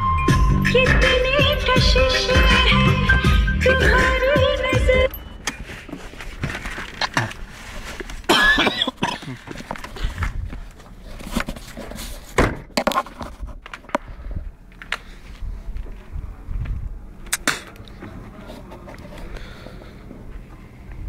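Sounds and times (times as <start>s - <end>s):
phone handling rustles and clicks: 5.1s - 12.1s, 12.7s - 14.1s.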